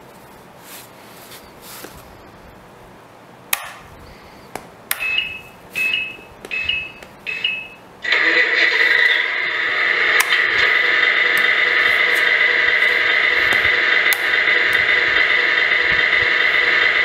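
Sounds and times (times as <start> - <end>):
switch clicks: 3.5 - 3.9, 4.5 - 7.8, 13.4 - 15.2
steady electronic tone: 4.3 - 17.0
short electronic beeps: 4.4 - 7.8.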